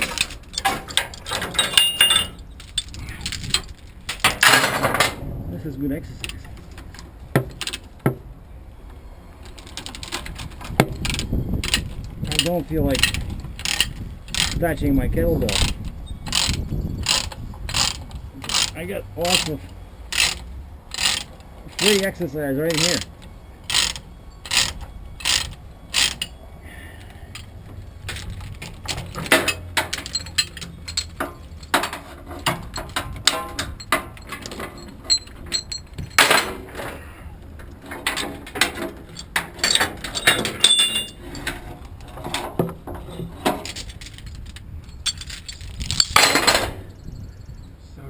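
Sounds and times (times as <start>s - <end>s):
chain rattle: 0.0s - 4.7s, 9.6s - 14.6s, 27.3s - 36.5s, 38.0s - 41.6s, 43.0s - 47.3s
metal chains clinking: 0.0s - 4.7s, 27.3s - 36.5s, 39.1s - 41.6s, 43.0s - 47.4s.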